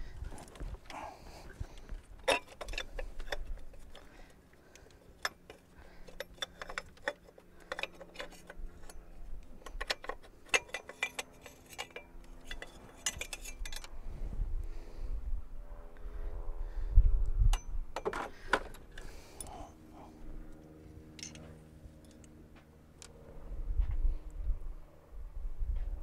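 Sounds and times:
metal parts clinking and knocking: 2.2 - 14.0, 21.1 - 22.3.

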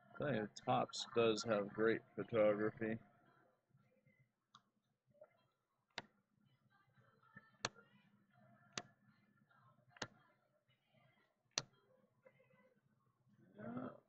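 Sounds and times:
faint background murmur: 5.0 - 14.0.

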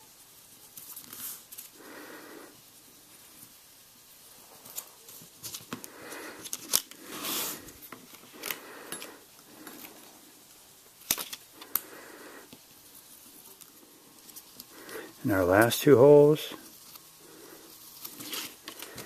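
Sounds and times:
template rustling on strap: 12.5 - 19.0.

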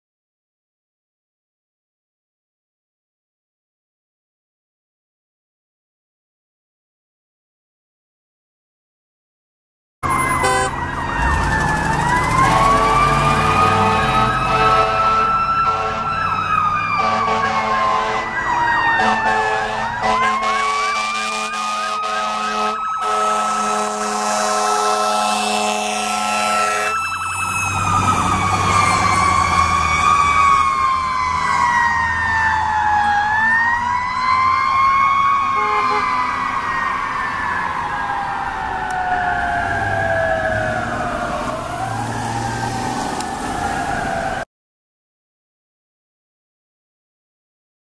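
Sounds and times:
air horn blasts: 10.0 - 10.9, 12.4 - 16.2, 17.0 - 18.4, 19.0 - 27.0, 35.6 - 36.2
fire engine siren wailing: 10.0 - 44.5.

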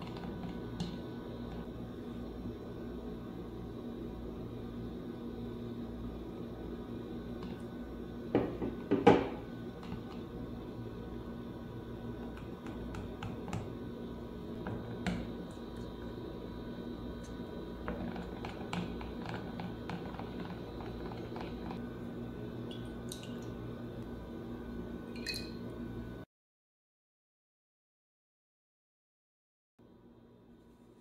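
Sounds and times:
whisk clicking and squelching in batter: 17.8 - 21.8.

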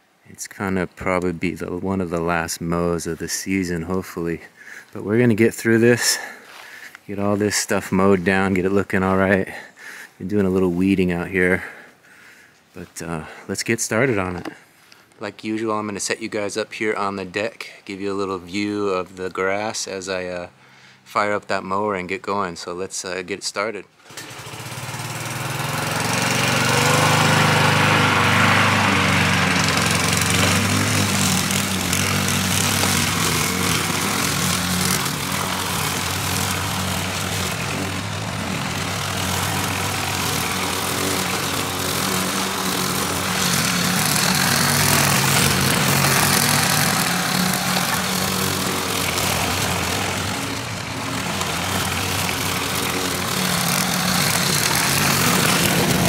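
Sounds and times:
lawn mower engine running: 24.0 - 56.0.

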